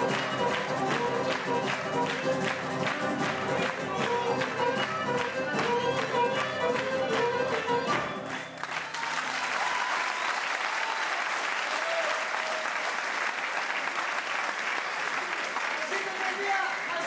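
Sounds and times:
audience applause: 0.0s - 5.3s, 5.9s - 17.0s
folk band bowed string melody: 0.0s - 8.5s.

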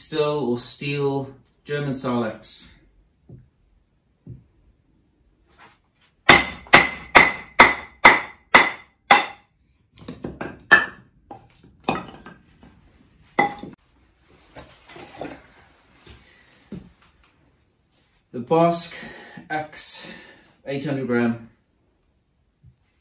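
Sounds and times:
hatchet striking wood: 6.2s - 9.5s, 10.1s - 12.2s.

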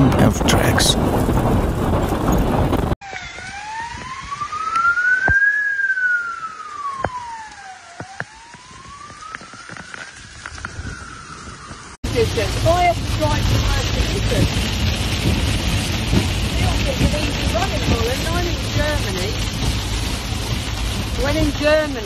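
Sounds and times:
loud storm noise: 0.0s - 7.4s, 10.2s - 22.0s
emergency vehicle siren wailing: 3.0s - 12.0s
heavy rain hissing: 12.0s - 22.0s.

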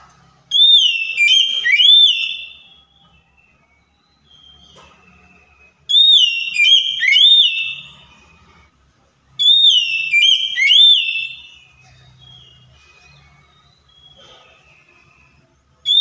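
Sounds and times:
bird whistled song: 0.5s - 8.4s, 9.4s - 14.9s, 15.8s - 16.0s.

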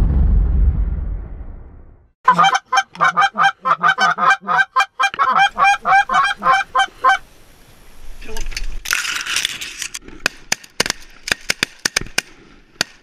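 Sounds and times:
goose honking: 2.3s - 7.2s.

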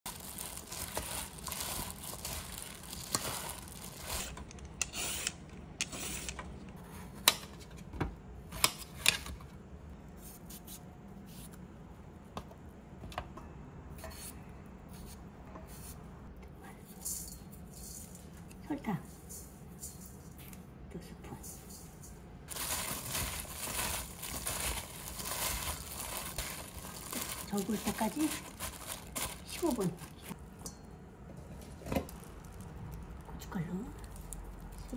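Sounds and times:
cucumber rustling and squishing: 0.1s - 4.4s, 22.5s - 30.4s, 31.8s - 34.9s.

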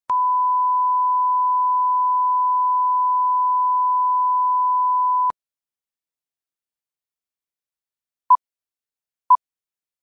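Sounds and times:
steady test tone beep: 0.1s - 5.3s.

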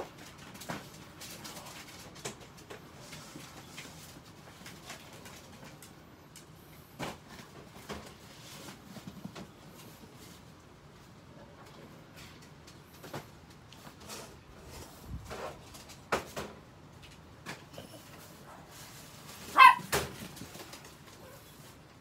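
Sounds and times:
small dog barking: 19.4s - 20.0s.

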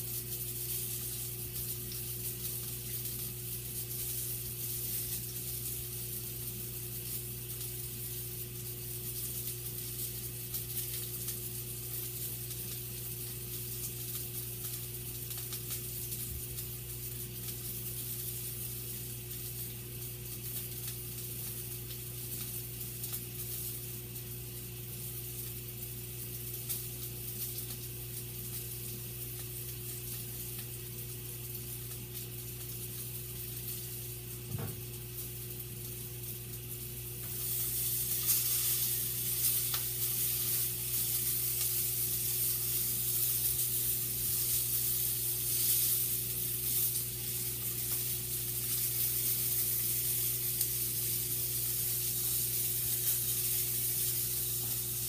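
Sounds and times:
sausage sizzling in a skillet: 0.0s - 55.0s.

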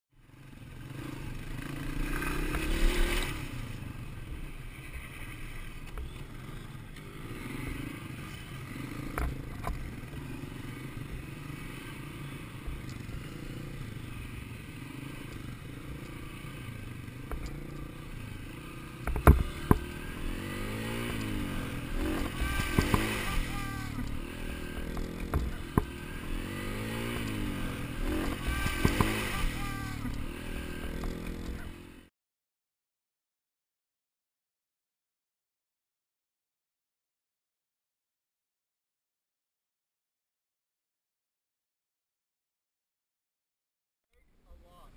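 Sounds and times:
dirt bike engine revving: 0.2s - 32.1s.

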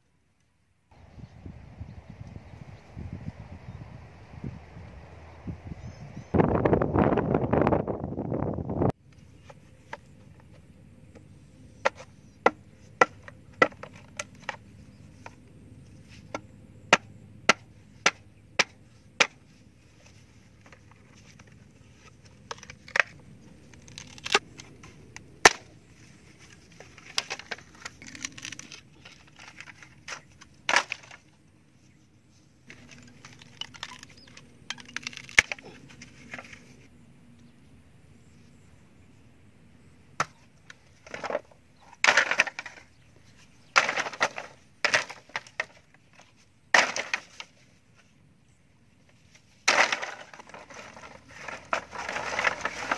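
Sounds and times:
bamboo cracking and scraping: 8.9s - 36.9s, 40.2s - 52.9s
blade chopping bamboo: 11.8s - 14.6s, 16.3s - 19.5s, 25.4s - 25.7s, 43.8s - 47.5s, 49.6s - 52.9s.

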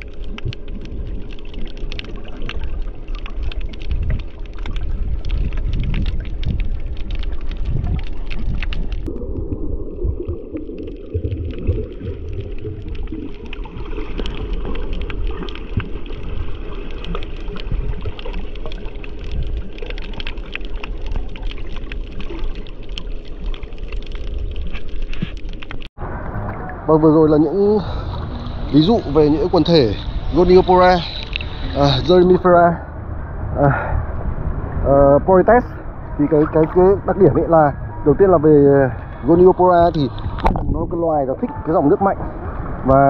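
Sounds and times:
underwater clicks and crackles: 0.0s - 33.2s, 34.1s - 42.6s
underwater rumble of moving water: 0.0s - 43.0s.

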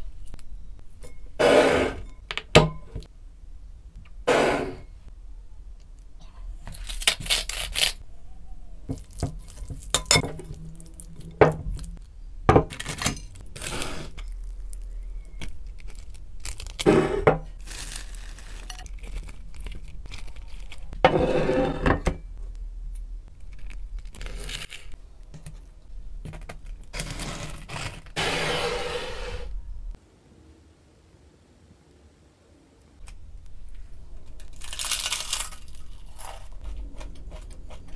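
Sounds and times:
crunchy rustling: 13.4s - 21.0s, 33.1s - 37.9s
pepper mill grinding: 34.3s - 37.9s.

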